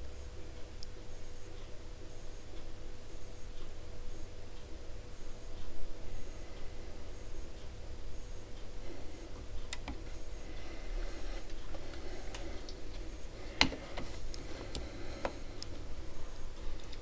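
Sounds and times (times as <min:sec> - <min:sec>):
small clicks and taps: 0:09.6 - 0:10.0, 0:11.5 - 0:15.7.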